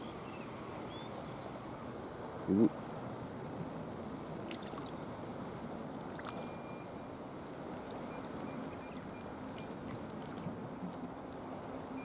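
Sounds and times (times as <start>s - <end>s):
sea water lapping against breakwater: 3.0s - 12.0s
small water splashes: 4.3s - 12.0s.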